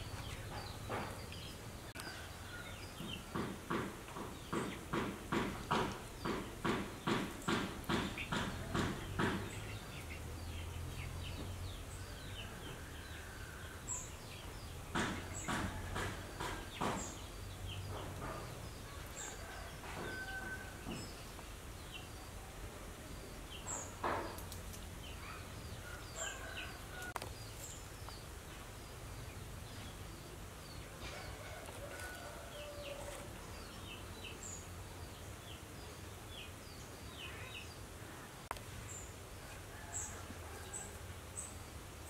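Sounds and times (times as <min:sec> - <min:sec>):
birds chirping: 0:00.0 - 0:42.0.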